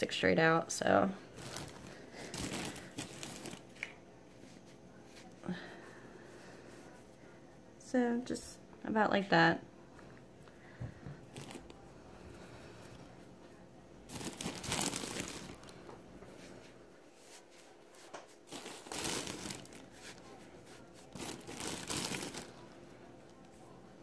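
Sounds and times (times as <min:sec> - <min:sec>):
stuffing rustling: 0:01.3 - 0:03.8, 0:14.1 - 0:15.7, 0:18.5 - 0:20.2, 0:21.0 - 0:22.5.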